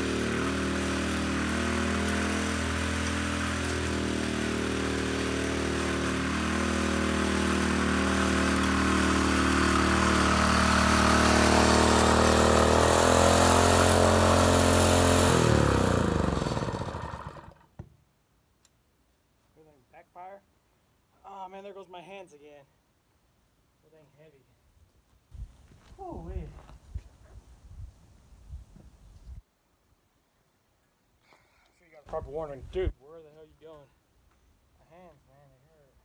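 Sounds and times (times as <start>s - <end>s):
rototiller engine running: 0.0s - 17.7s
tines churning soil: 0.0s - 17.7s.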